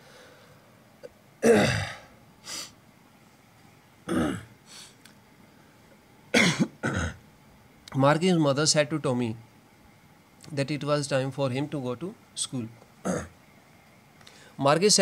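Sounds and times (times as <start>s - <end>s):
man coughing: 1.4s - 2.1s, 4.1s - 4.5s, 6.3s - 7.2s, 13.0s - 13.3s.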